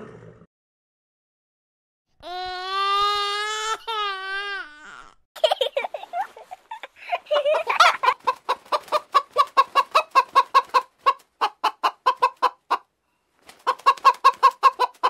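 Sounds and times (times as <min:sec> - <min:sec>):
hen clucking: 0:07.4 - 0:12.9, 0:13.6 - 0:15.0.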